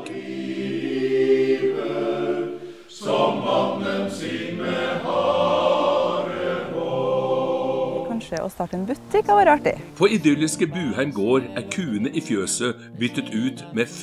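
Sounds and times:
choir singing held chords: 0.0s - 8.4s.

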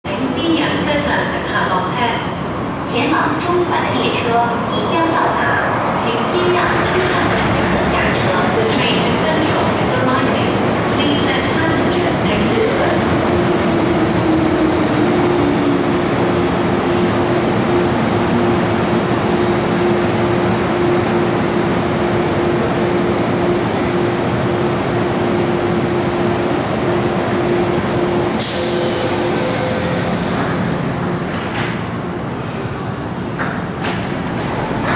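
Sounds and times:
train rumbling and braking: 0.1s - 34.9s
compressed air hiss: 28.4s - 30.5s.

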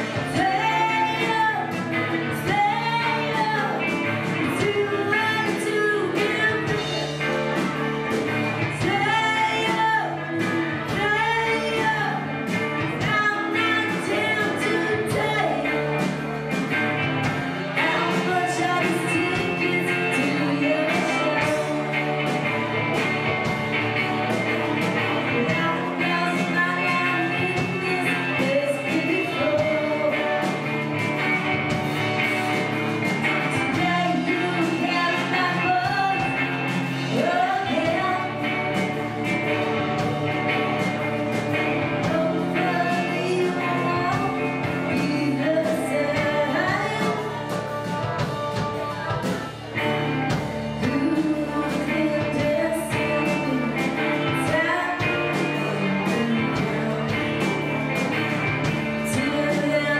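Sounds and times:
electric guitars: 0.0s - 59.9s
person singing: 0.0s - 59.9s
steady drum beat: 0.0s - 59.9s.

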